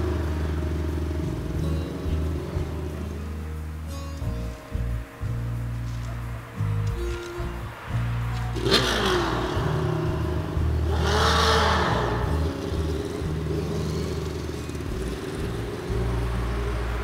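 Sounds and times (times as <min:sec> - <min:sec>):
motorcycle engine revving past: 0:06.5 - 0:17.0.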